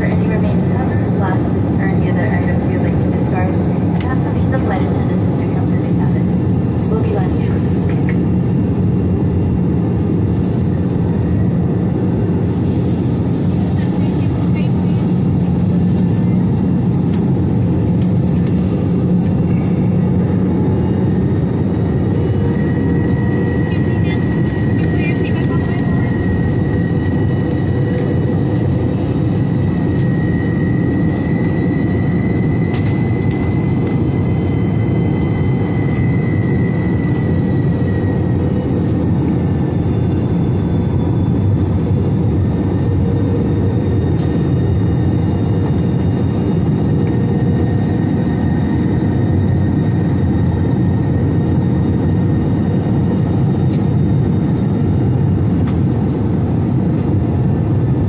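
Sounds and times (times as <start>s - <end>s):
jet engine rumble: 0.0s - 58.0s.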